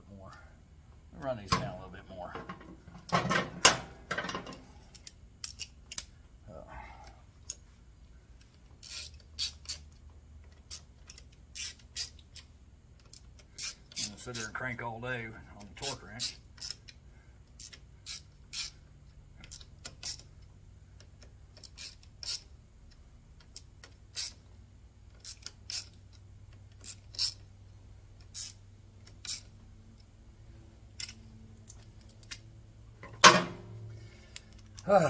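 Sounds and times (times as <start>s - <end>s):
torque wrench ratchet clicking: 5.0s - 6.2s, 8.8s - 14.6s, 15.8s - 22.5s, 23.4s - 24.4s, 25.1s - 27.5s, 28.2s - 30.1s
metallic clunk: 33.0s - 33.9s.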